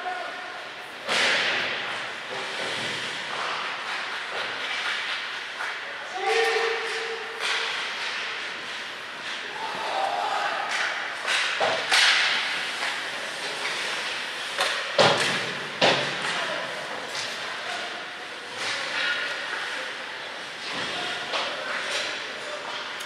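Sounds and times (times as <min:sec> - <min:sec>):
skates scraping on ice: 0:01.2 - 0:10.1, 0:10.7 - 0:23.0
sticks and puck knocking boards: 0:14.6 - 0:16.3.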